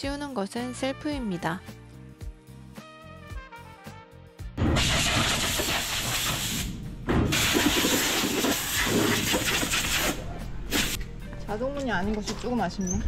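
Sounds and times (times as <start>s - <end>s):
compressed air gun hissing: 4.7s - 11.0s.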